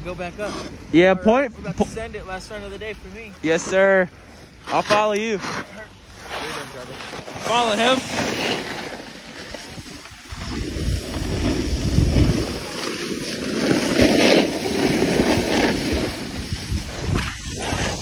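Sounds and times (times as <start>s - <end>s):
snowboard scraping on snow: 0.0s - 18.0s
wind on microphone: 9.5s - 18.0s.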